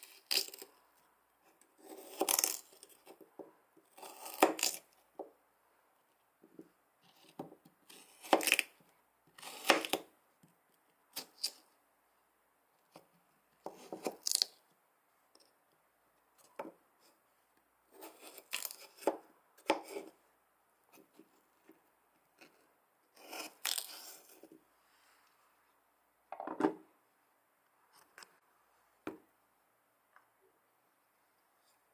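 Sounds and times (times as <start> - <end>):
knife cutting on plastic board: 9.4 - 10.1, 17.9 - 20.2, 23.2 - 24.5.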